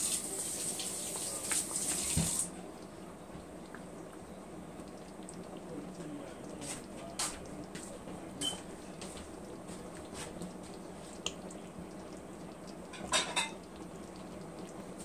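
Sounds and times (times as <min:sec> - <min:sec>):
sauce simmering with soft pops: 0:02.5 - 0:15.0.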